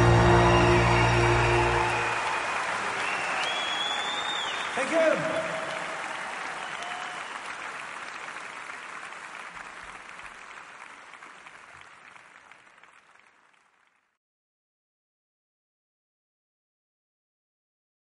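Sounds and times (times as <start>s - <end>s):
audience applause: 0.0s - 14.2s.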